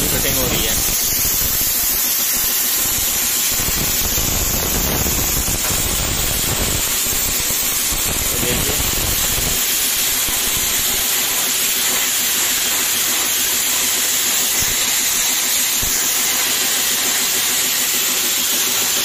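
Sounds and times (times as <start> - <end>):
plasma cutter torch hissing: 0.0 - 19.0.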